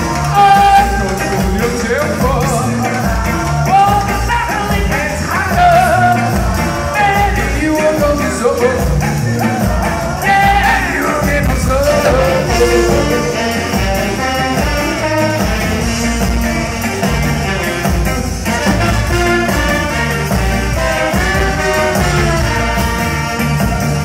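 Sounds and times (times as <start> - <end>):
guitar: 0.0 - 24.0
voices singing together: 11.8 - 14.1
horn section: 11.8 - 14.6.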